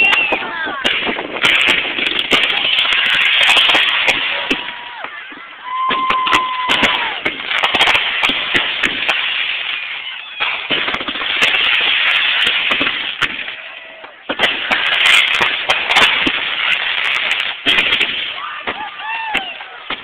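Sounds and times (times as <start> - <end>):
firework whistle: 0.0 - 0.4, 5.6 - 7.2, 9.7 - 10.7
fireworks crackling and popping: 0.0 - 20.0.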